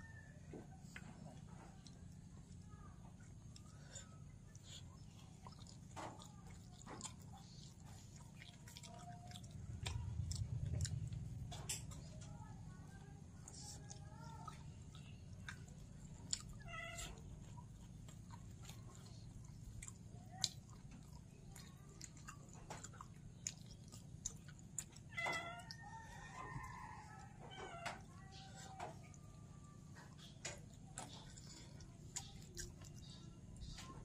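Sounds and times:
person chewing food: 0.5s - 34.0s
cat meowing: 16.6s - 17.2s, 25.1s - 25.8s.

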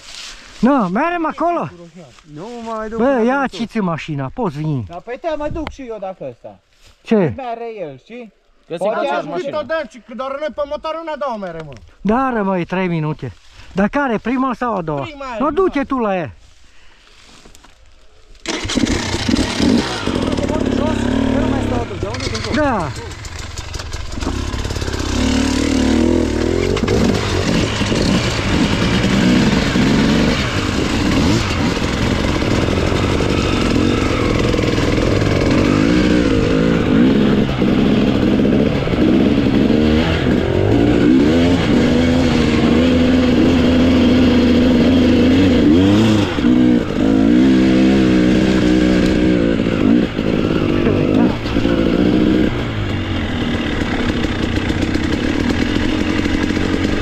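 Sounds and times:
motorcycle engine revving: 18.4s - 57.0s.

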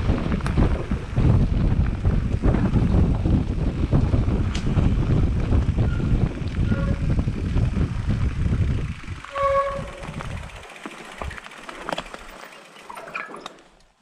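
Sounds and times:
bike rattles and clicks: 0.0s - 14.0s
wind and tyre rumble: 0.0s - 14.0s
bike brakes squealing: 5.8s - 7.2s, 9.2s - 10.6s.

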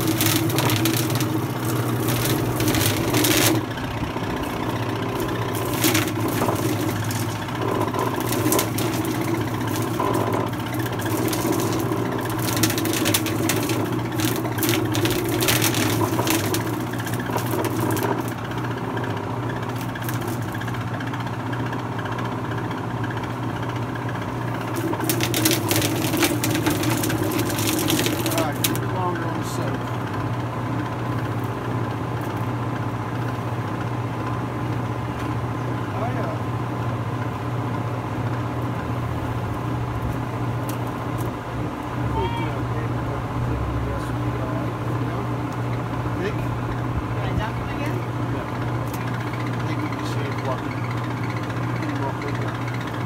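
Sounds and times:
motor humming: 0.0s - 33.3s.

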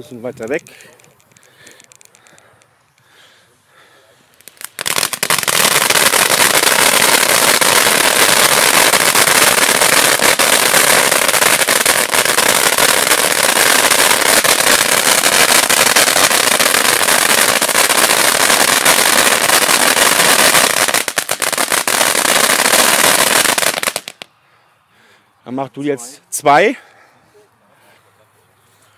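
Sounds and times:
firework fountain hissing sparks: 4.4s - 24.2s.

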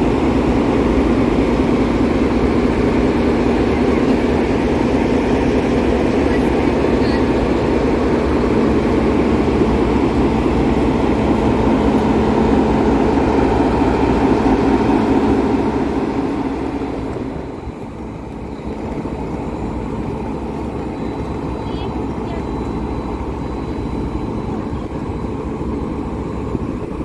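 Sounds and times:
diesel locomotive engine idling: 0.0s - 27.0s.

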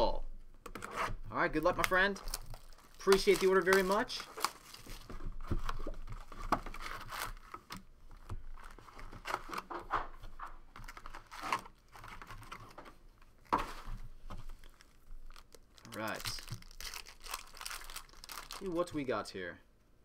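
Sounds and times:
foil packs crinkling: 1.6s - 9.6s, 10.7s - 12.8s, 14.5s - 19.1s.

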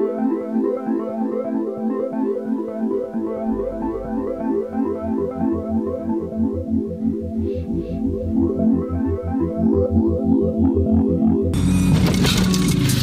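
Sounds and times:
fast synthesizer keyboard pattern: 0.0s - 11.6s
pulsing bass line: 2.6s - 13.0s.

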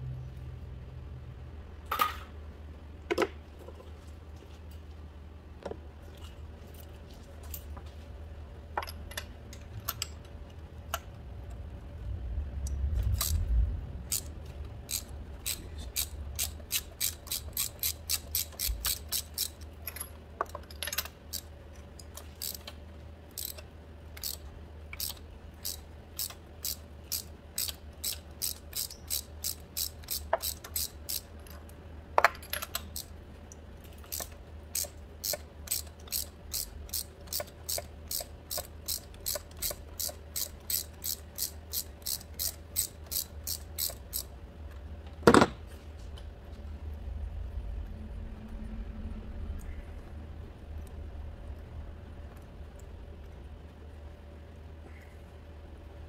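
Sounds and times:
hand ratchet clicking: 13.1s - 13.4s, 14.1s - 20.1s, 20.8s - 22.7s, 23.3s - 23.6s, 24.2s - 24.4s, 25.0s - 31.3s, 34.0s - 44.3s
short low rumble: 46.6s - 53.2s.

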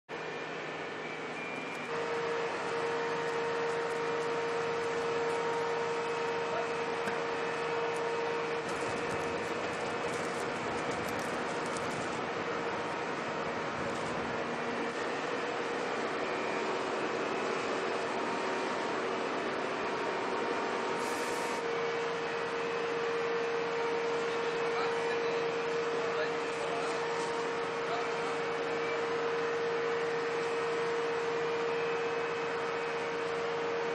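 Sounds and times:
fire engine running: 0.1s - 33.9s
brief high hiss: 21.0s - 21.6s.

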